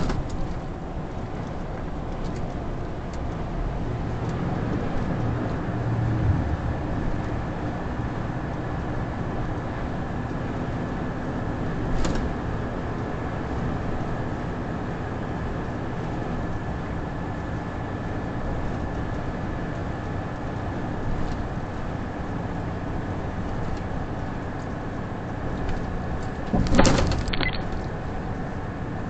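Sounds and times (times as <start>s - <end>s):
truck engine and road noise: 0.0s - 29.0s
loud clatter: 26.5s - 27.9s.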